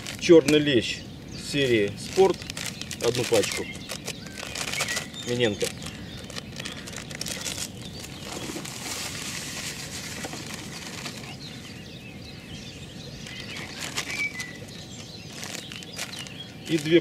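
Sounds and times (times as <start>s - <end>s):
plastic packet crinkling: 0.0s - 0.3s, 2.0s - 11.3s, 13.3s - 14.7s, 15.3s - 17.0s.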